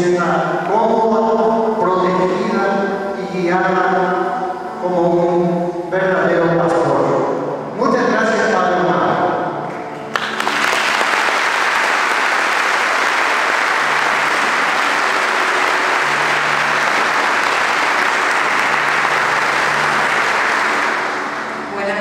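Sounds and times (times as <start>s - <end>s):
congregation applauding: 9.9s - 21.8s.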